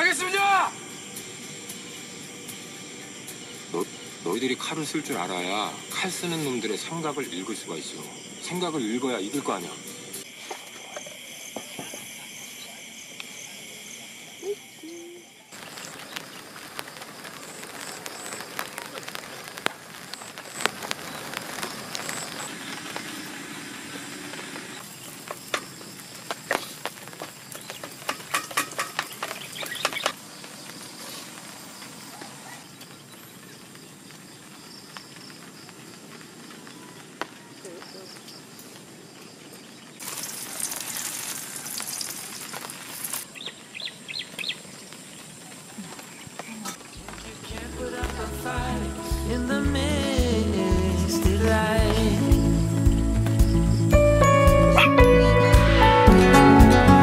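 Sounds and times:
steady hiss: 0.0s - 54.8s
fat sizzling in a frying pan: 15.5s - 38.4s, 39.2s - 52.8s
sharp clicks and crackles: 15.6s - 30.8s
small bird chirping: 27.4s - 30.8s, 39.2s - 47.7s.

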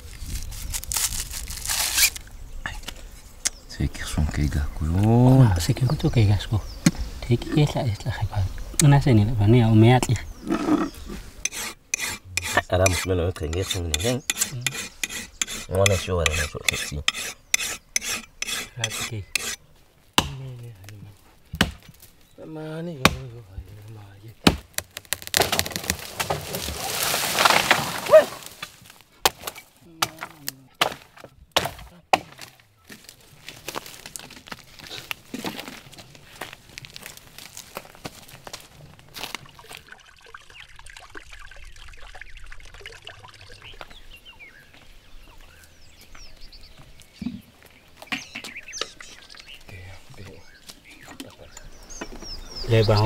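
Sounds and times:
hand saw rasping strokes: 11.4s - 19.6s.

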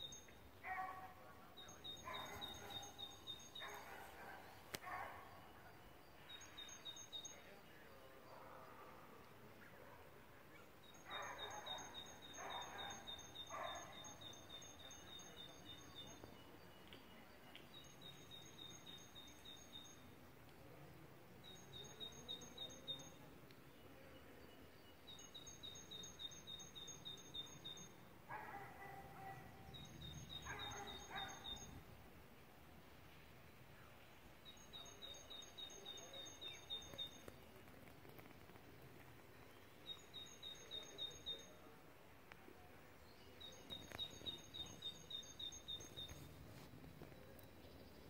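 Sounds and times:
dog barking: 0.6s - 1.3s, 2.0s - 3.0s, 3.6s - 5.4s, 11.1s - 14.2s, 28.3s - 29.8s, 30.4s - 31.7s.

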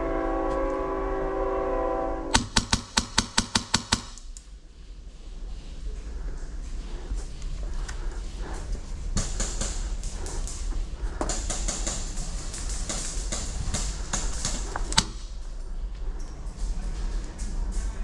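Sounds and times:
airsoft gunfire: 2.3s - 4.2s, 11.3s - 15.2s
pellets striking plywood: 2.4s - 4.2s.

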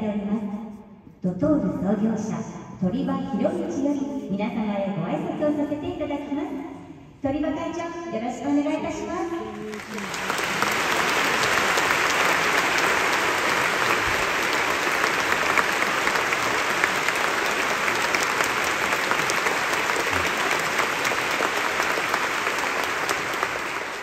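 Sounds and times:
audience applauding: 9.5s - 24.0s.

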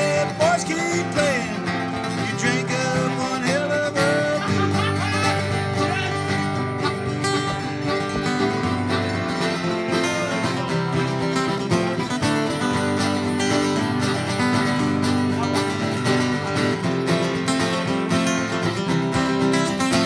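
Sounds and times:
harmonica melody: 0.0s - 15.4s
acoustic guitars strumming: 0.0s - 20.0s
small plucked string instrument: 0.0s - 20.0s.

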